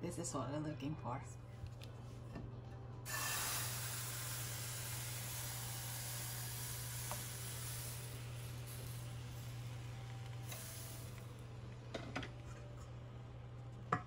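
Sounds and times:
batter sizzling in frying pan: 3.1 - 11.4.

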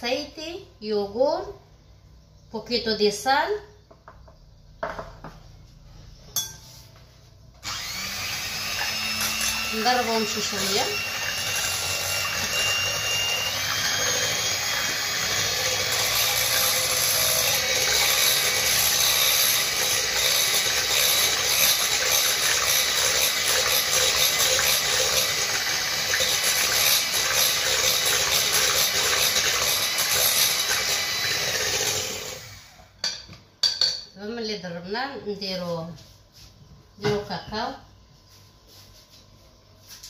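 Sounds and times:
electric hand mixer running: 7.6 - 32.9.

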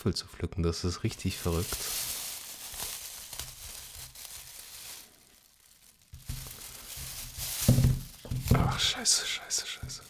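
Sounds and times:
rustling crinkling handling noise: 0.9 - 10.0.

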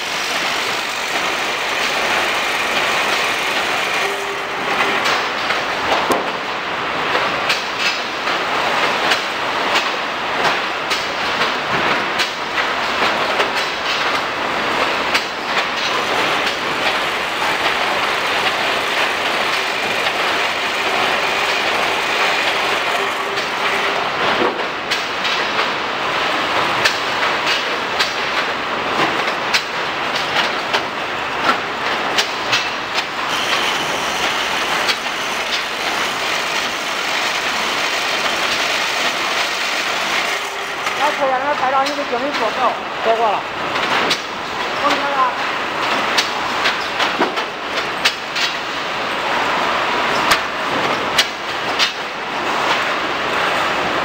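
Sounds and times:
clicks and knocks from conveyors: 0.0 - 6.5, 7.1 - 42.8, 43.6 - 53.7
steady machine noise: 0.0 - 9.8, 12.4 - 28.0, 29.4 - 46.9.

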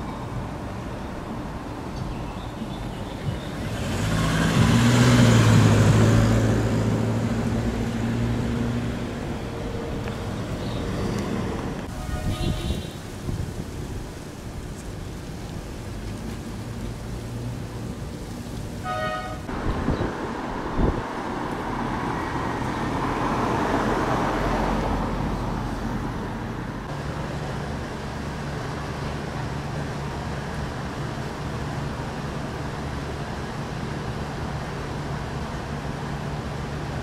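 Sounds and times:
vehicle passing: 2.7 - 13.2, 16.0 - 27.9.

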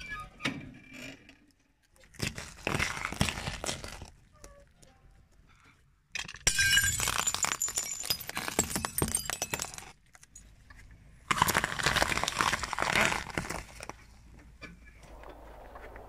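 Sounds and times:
tyre crushing glass bottle: 6.2 - 10.4, 11.3 - 13.9
tyre crushing apples: 11.3 - 14.0.

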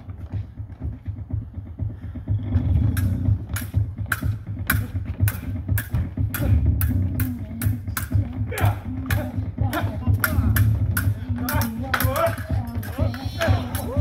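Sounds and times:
low steady hum: 0.0 - 14.0
rapiers clashing: 2.9 - 14.0.

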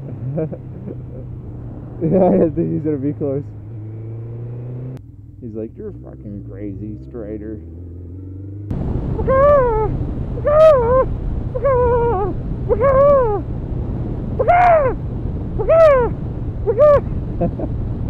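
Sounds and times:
motorcycle rumble and wind noise: 0.0 - 18.0
person hooting like an owl: 9.2 - 13.4, 14.4 - 15.0.

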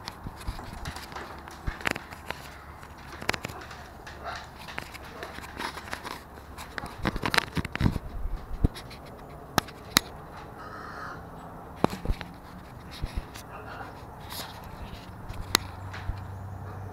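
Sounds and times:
camera handling scratches and scrapes: 0.0 - 10.2, 11.8 - 16.3
camera clicks and knocks: 0.0 - 10.6.

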